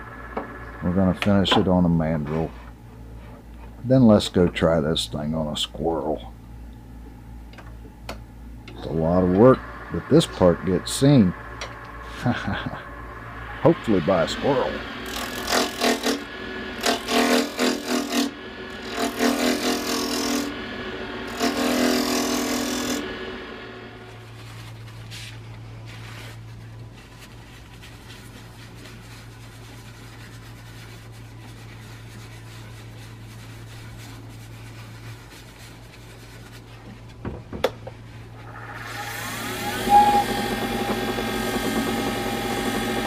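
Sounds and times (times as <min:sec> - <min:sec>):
lathe humming: 0:00.0 - 0:01.3, 0:08.7 - 0:24.3, 0:38.4 - 0:43.0
turning tool scraping spinning wood: 0:08.8 - 0:23.4, 0:38.2 - 0:43.0.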